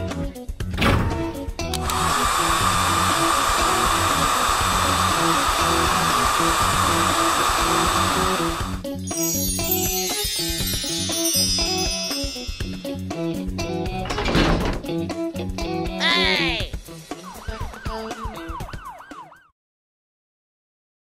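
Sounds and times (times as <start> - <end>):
background music with bass line: 0.0 - 3.0, 5.8 - 19.0
cartoon power-tool whirring: 1.7 - 8.8.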